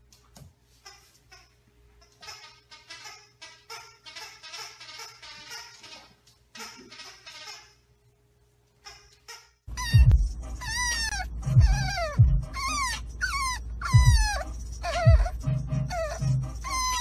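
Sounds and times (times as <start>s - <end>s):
puppy whining cries: 8.9s - 17.0s.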